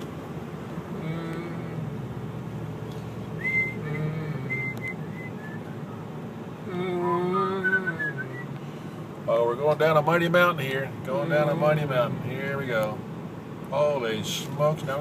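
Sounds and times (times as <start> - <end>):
car road noise: 0.0 - 15.0
person whistling: 3.4 - 5.8, 7.6 - 8.5.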